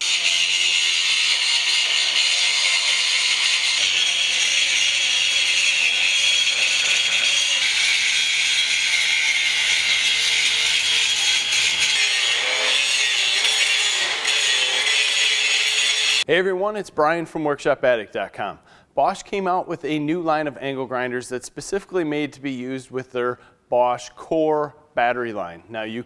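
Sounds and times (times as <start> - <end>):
angle grinder grinding steel: 0.0 - 16.3.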